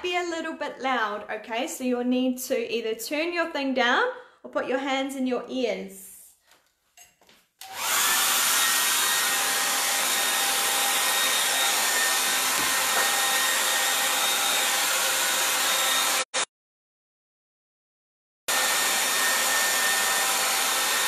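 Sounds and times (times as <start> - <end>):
hair dryer blowing air: 7.6 - 16.5, 18.5 - 21.0.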